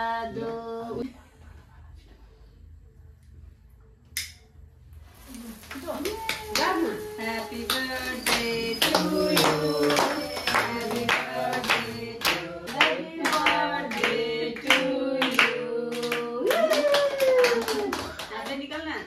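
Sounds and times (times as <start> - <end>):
group singing a birthday song: 0.0 - 1.2, 6.2 - 16.8
people clapping in time: 7.6 - 18.7.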